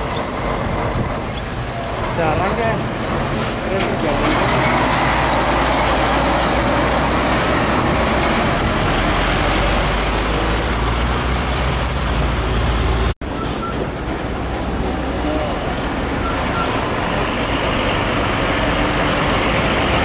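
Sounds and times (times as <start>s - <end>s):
diesel truck driving past: 4.0s - 13.4s.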